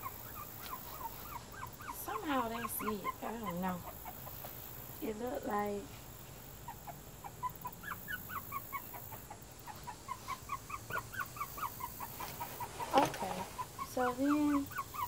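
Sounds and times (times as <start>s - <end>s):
bird chirping: 6.7s - 15.0s
photo tent panels crackling: 12.1s - 13.6s.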